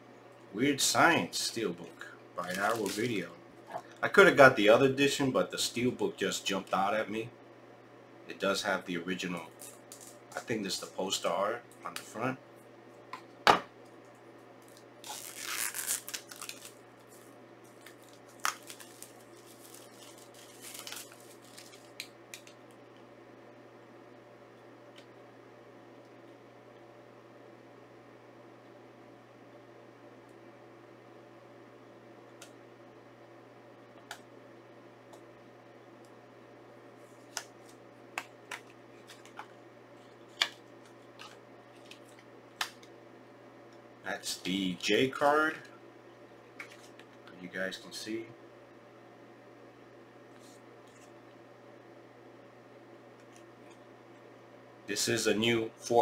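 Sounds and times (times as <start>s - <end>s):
faint steady hum: 0.0s - 56.0s
shrink wrap tearing and crinkling: 2.4s - 3.2s, 14.6s - 22.8s.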